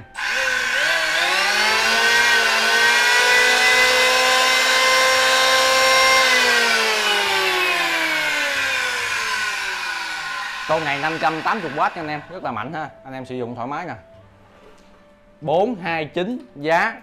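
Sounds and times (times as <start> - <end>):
electric planer motor whining: 0.0 - 12.4.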